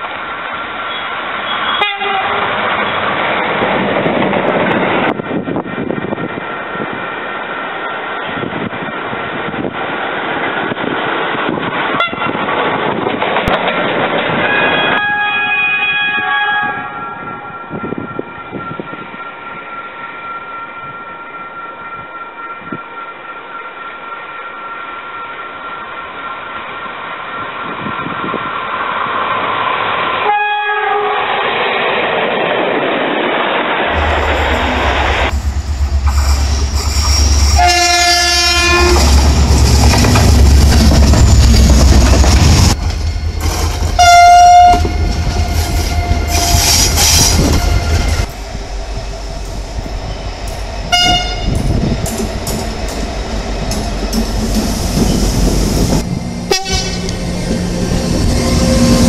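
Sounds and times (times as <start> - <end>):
train passing rumble and clatter: 0.0 - 59.0
train horn: 1.6 - 2.6, 12.0 - 12.4, 14.4 - 18.8, 30.2 - 31.4, 33.9 - 40.0, 42.8 - 48.7, 50.8 - 51.9, 56.0 - 59.0.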